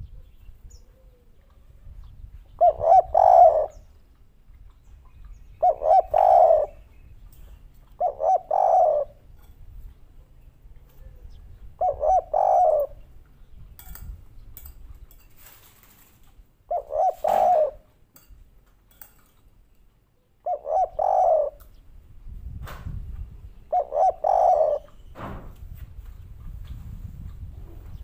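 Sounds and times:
dove cooing: 0.0s - 1.8s, 2.4s - 3.9s, 5.3s - 9.4s, 10.8s - 13.2s, 16.6s - 18.0s, 20.4s - 21.8s, 23.7s - 25.0s.

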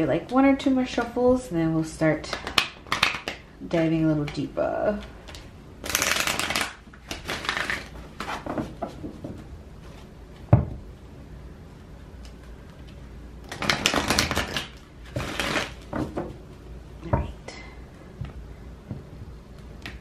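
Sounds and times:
cards being shuffled: 5.0s - 8.9s, 12.2s - 16.2s.

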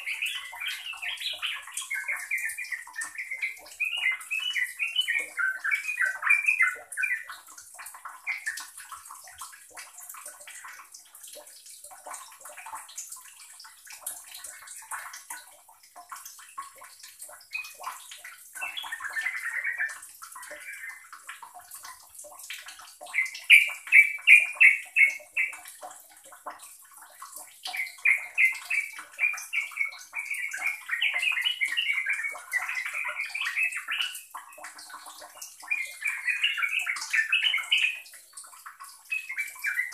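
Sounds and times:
bird singing: 0.0s - 7.3s, 18.6s - 21.0s, 23.1s - 25.6s, 27.7s - 34.2s, 35.7s - 38.0s, 39.1s - 39.9s.

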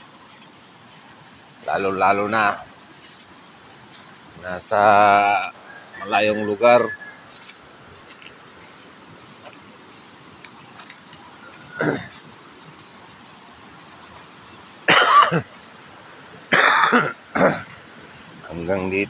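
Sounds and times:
insects droning: 0.0s - 19.0s
person coughing: 11.8s - 12.2s, 14.9s - 15.5s, 16.5s - 17.7s.

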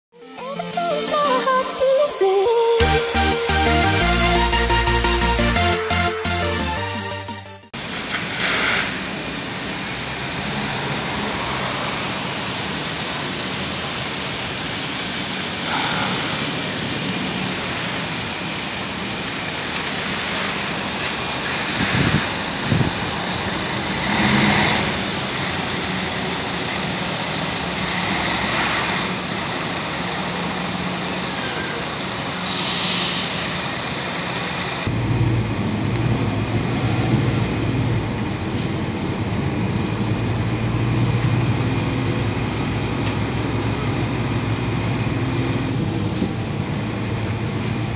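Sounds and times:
bus diesel engine running: 2.6s - 47.9s
compressed air hiss: 7.9s - 9.1s, 15.4s - 17.3s, 32.4s - 33.7s.

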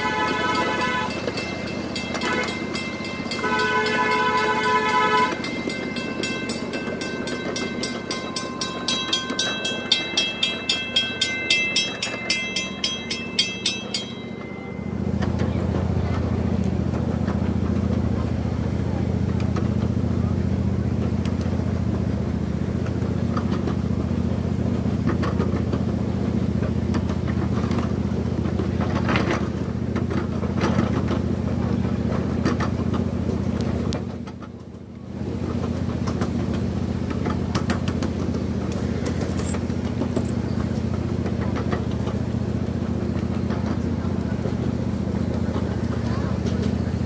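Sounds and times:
miniature train engine running: 0.0s - 47.0s
wheels clattering on track: 0.0s - 47.0s.

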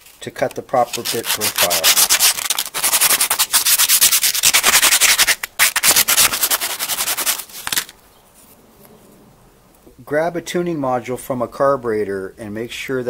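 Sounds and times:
tool bit rubbing on sandpaper: 0.7s - 7.9s.

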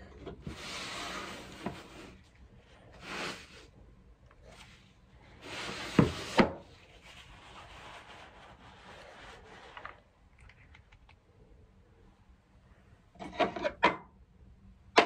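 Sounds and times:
tissue paper rustling: 6.7s - 10.0s.

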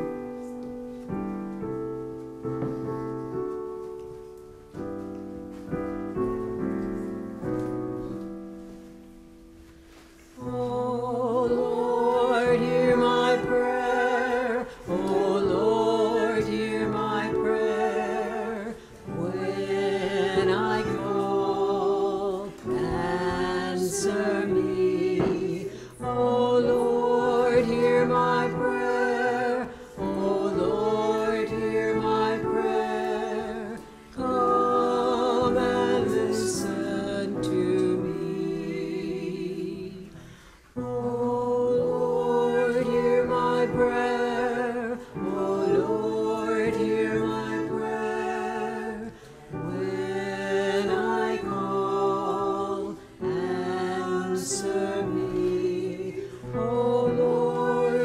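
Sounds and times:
voices singing a hymn: 0.0s - 8.8s, 9.7s - 58.0s
piano accompaniment: 0.0s - 58.0s.

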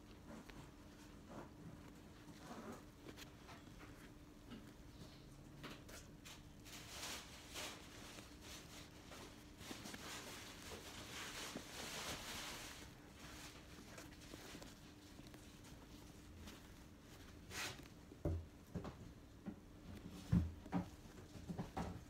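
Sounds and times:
fingers rustling and scraping sneaker: 6.9s - 19.3s.

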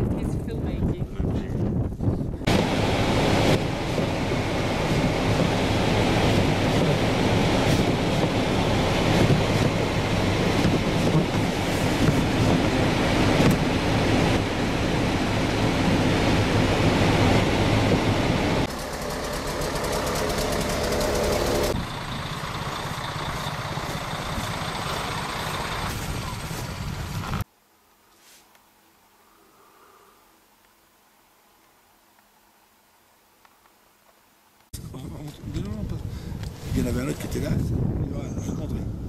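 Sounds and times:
car engine and fan rumble: 0.0s - 27.5s, 34.8s - 39.0s
snow shovel scraping windscreen: 2.5s - 14.4s, 22.9s - 27.4s, 36.5s - 37.4s.

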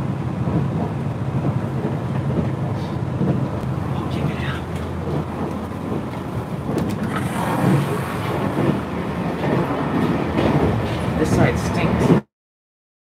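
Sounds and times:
train running rumble: 0.0s - 12.3s.

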